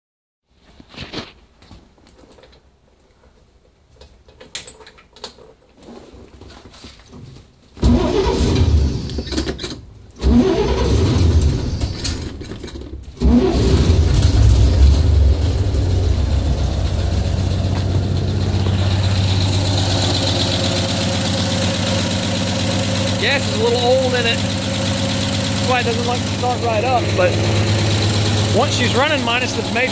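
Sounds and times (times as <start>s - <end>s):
truck engine starting and idling: 7.8s - 29.9s.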